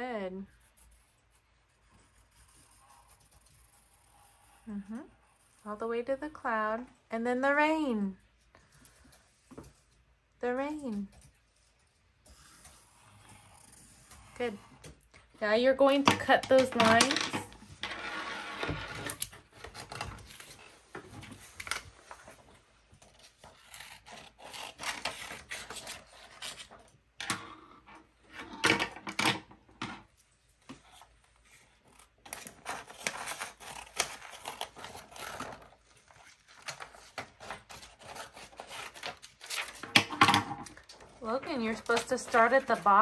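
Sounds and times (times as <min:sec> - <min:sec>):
scissors cutting paper: 0:15.9 - 0:17.2, 0:23.0 - 0:27.0, 0:31.5 - 0:39.9, 0:41.2 - 0:43.0
paper rustling: 0:30.9 - 0:40.0, 0:40.7 - 0:43.0.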